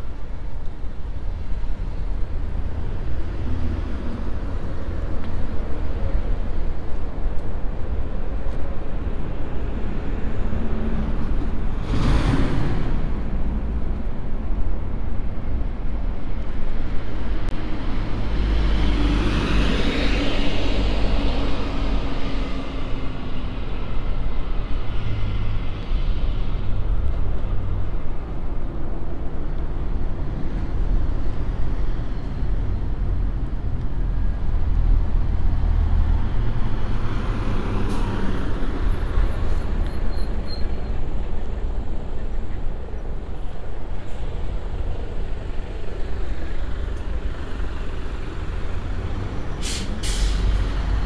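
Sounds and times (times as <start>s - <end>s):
vehicle passing by: 10.8s - 13.4s.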